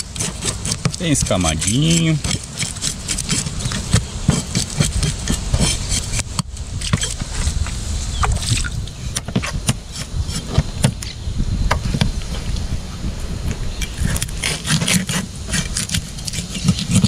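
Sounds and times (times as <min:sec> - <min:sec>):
knife scraping fish scales: 0:00.0 - 0:07.7, 0:13.8 - 0:17.0.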